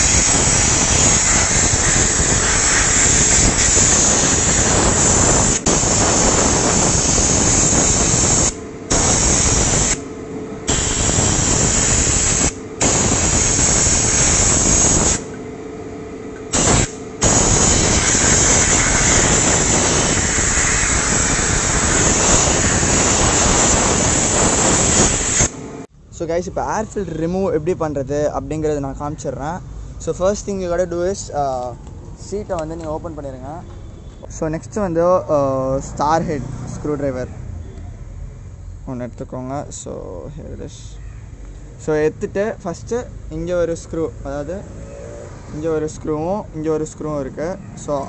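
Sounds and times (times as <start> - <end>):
compressed air blow gun hissing: 0.0 - 15.3, 16.5 - 25.6.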